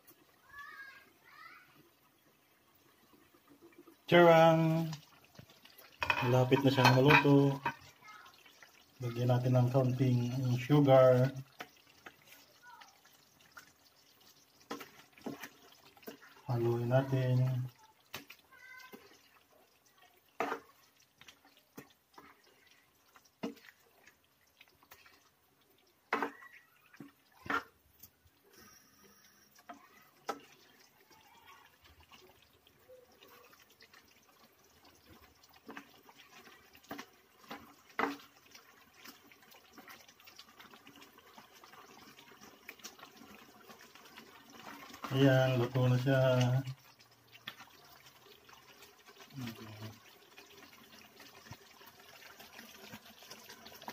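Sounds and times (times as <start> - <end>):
sauce bubbling: 0.0 - 53.9
spatula scraping frying pan: 5.9 - 8.0, 20.4 - 21.5, 26.1 - 27.8.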